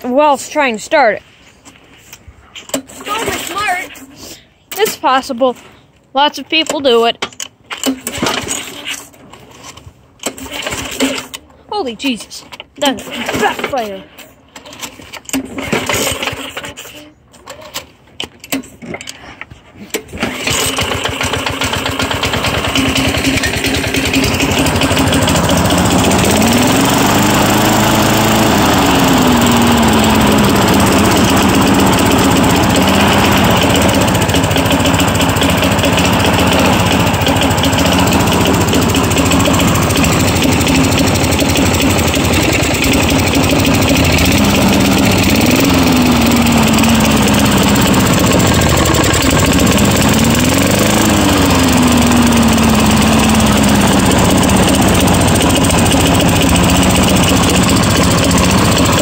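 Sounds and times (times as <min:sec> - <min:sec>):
lawn mower engine starting: 0:02.6 - 0:05.7, 0:06.3 - 0:59.0.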